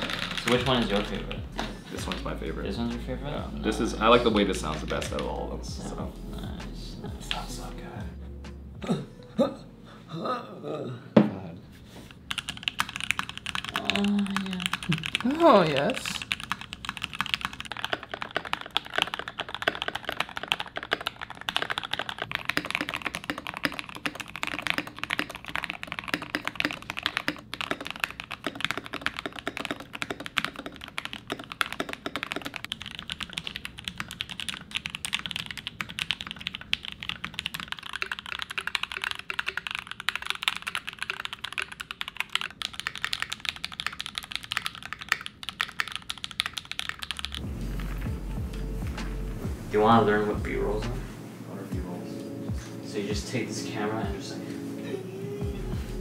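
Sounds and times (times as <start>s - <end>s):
mechanical keyboard typing: 0.0s - 1.4s, 12.2s - 47.4s.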